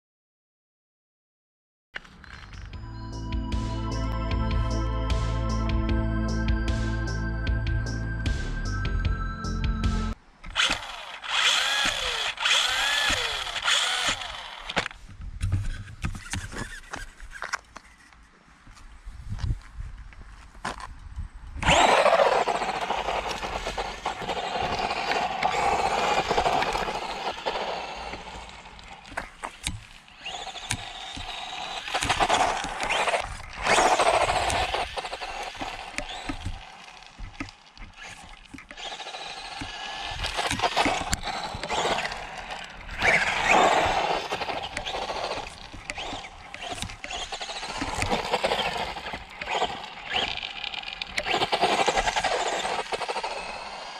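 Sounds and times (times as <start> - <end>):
toy car motor whining: 10.5 - 15.0, 15.6 - 18.0, 21.6 - 53.9.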